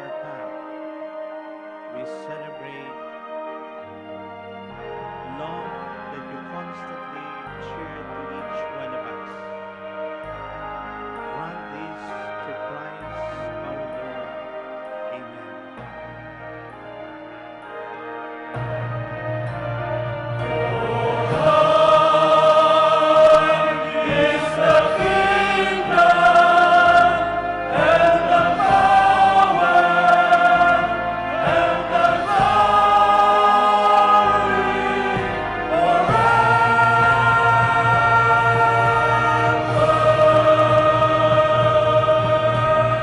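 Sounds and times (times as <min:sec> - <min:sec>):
male choir singing: 0:04.9 - 0:15.6, 0:19.4 - 0:43.0.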